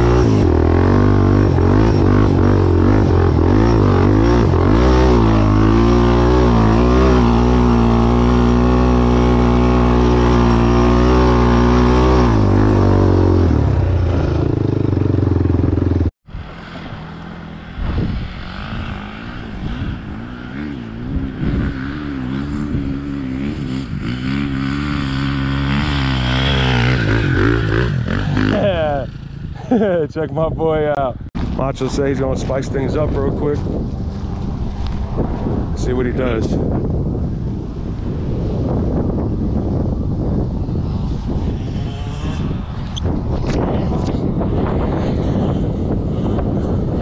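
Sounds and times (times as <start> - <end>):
engine revving: 0.0 - 29.9
off-road engine running: 0.0 - 30.3.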